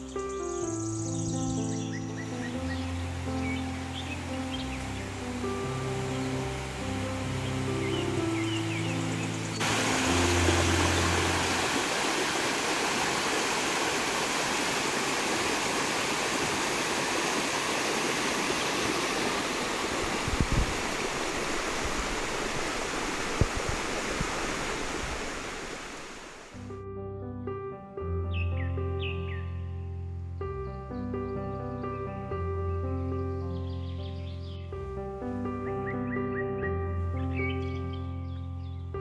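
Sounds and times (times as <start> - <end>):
soft music: 0.0 - 14.6, 19.1 - 39.0
stream rushing over rocks: 2.7 - 26.6.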